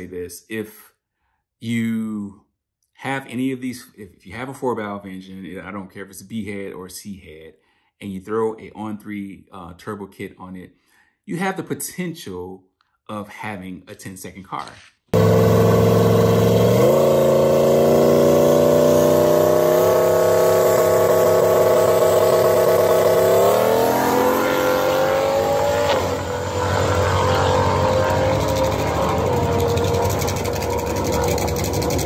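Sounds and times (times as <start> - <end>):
car engine revving and accelerating: 15.2 - 32.0.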